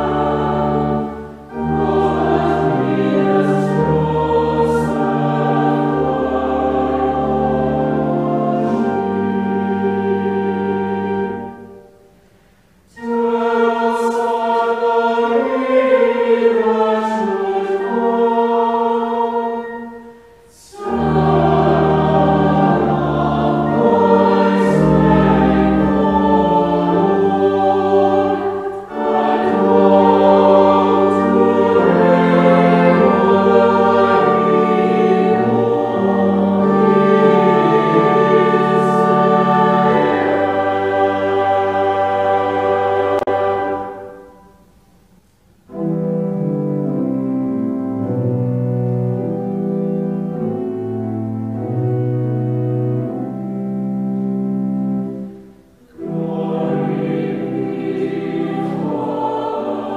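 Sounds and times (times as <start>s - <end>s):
deep organ bass notes: 0.0s - 11.9s, 20.7s - 44.2s
choir singing in parts: 0.0s - 12.2s, 12.9s - 44.7s, 45.7s - 59.9s.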